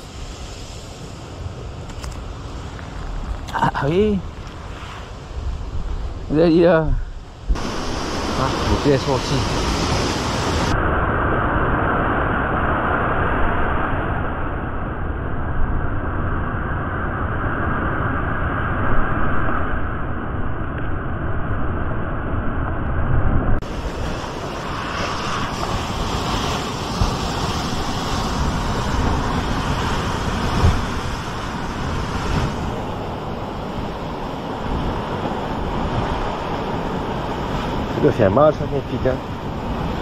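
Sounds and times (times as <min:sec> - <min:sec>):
sea surf washing on shore: 0:00.0 - 0:14.9, 0:23.6 - 0:40.0
wind buffeting microphone: 0:00.0 - 0:40.0.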